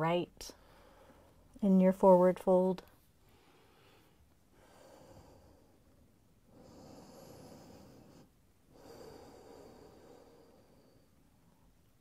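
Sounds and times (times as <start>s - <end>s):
person breathing slowly: 0.6s - 1.5s, 3.2s - 11.7s.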